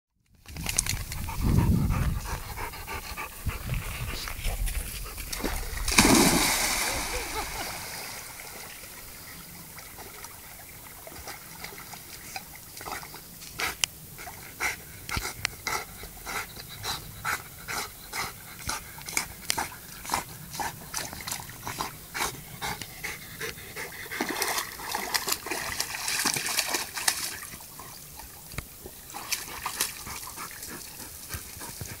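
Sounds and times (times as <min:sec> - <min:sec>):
dog panting: 0:01.0 - 0:05.5, 0:13.6 - 0:20.9, 0:21.6 - 0:25.1, 0:29.1 - 0:32.0
water splashing: 0:05.1 - 0:13.0, 0:24.2 - 0:31.0.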